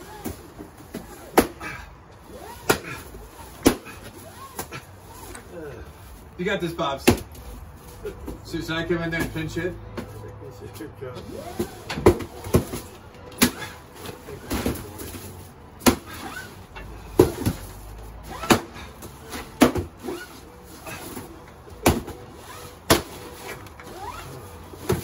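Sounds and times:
stick hitting cardboard pinata: 0.1 - 1.8, 2.6 - 4.8, 7.0 - 7.4, 11.6 - 13.8, 15.8 - 16.3, 17.1 - 20.0, 21.8 - 22.2, 22.8 - 23.3, 24.8 - 25.0.

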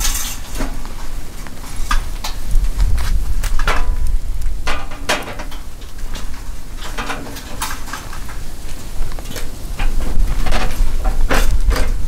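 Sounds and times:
irregular knocks and clatter: 0.0 - 12.0
low rumble: 0.8 - 6.9.

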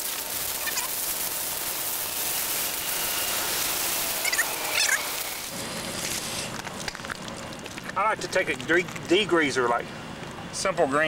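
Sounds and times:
hose spraying water on metal: 0.0 - 6.6.

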